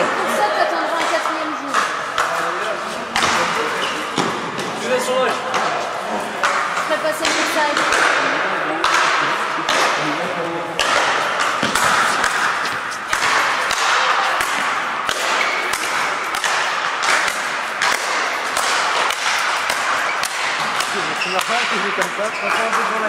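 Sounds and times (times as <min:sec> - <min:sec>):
rackets hitting a ball: 0:00.0 - 0:23.0
distant ball hits echoing: 0:10.8 - 0:23.0.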